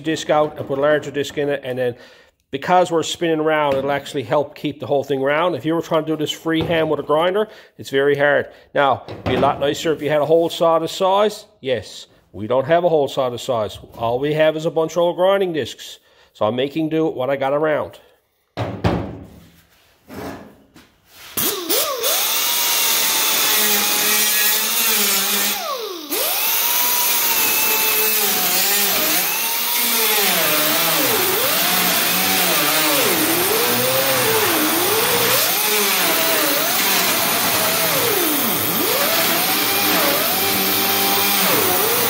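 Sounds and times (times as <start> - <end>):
angle grinder grinding steel: 21.4 - 42.0.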